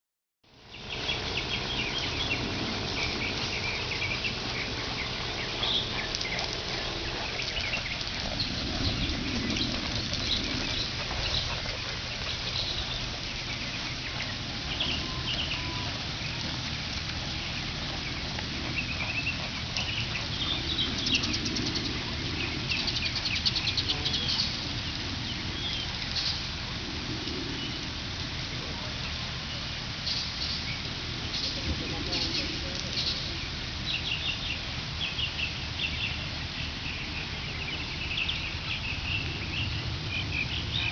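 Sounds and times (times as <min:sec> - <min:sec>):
outdoor background rush: 0:00.4 - 0:40.9
birds chirping: 0:00.5 - 0:40.9
bird rattling trill: 0:01.2 - 0:24.6.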